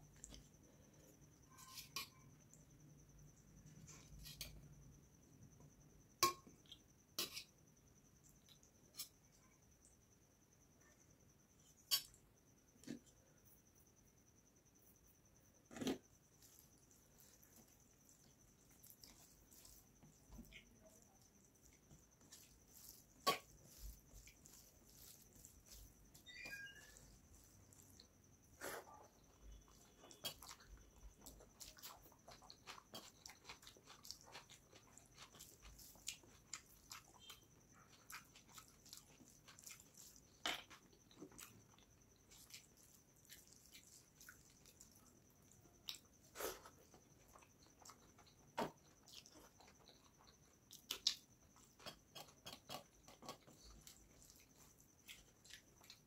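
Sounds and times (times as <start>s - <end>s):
hand mixing rice on steel plate: 15.8s - 47.1s
wet chewing clicks: 29.7s - 46.2s.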